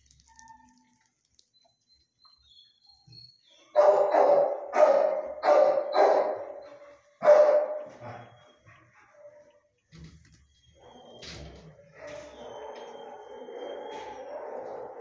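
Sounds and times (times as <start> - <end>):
dog barking with echo: 3.8 - 8.3, 12.1 - 15.0.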